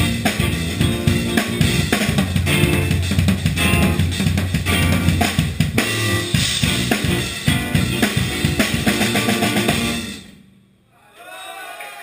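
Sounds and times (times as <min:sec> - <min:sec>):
funk band playing live: 0:00.0 - 0:10.2
drum kit hits: 0:00.0 - 0:10.3.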